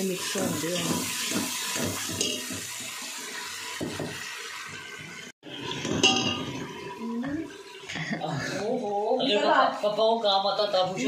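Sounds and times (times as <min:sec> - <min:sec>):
masala frying with hiss: 0:00.0 - 0:11.0
ladle stirring: 0:00.2 - 0:03.0, 0:04.0 - 0:07.9
ladle clinking against pot: 0:05.8 - 0:06.6.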